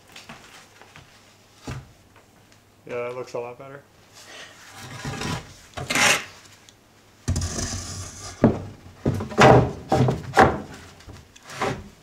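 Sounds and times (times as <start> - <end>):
wood scraping: 4.3 - 6.6, 7.3 - 12.0
wood knocking on wood: 8.4 - 10.8.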